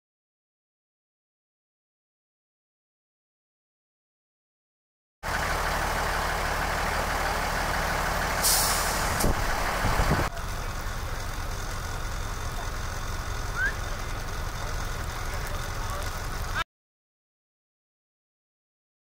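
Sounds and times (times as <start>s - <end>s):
vehicle engines idling: 5.2s - 16.6s
brief hiss: 8.4s - 9.4s.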